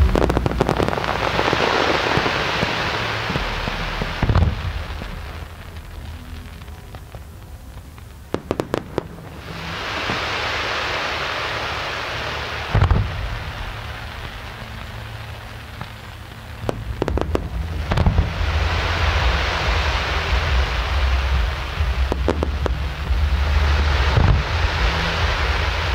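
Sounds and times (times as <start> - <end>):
fireworks boom: 0.0 - 7.1, 12.6 - 15.0, 16.6 - 25.9
fireworks cracks: 0.0 - 25.9
fireworks hissing crackle: 0.0 - 25.9
low rumble: 0.0 - 25.9.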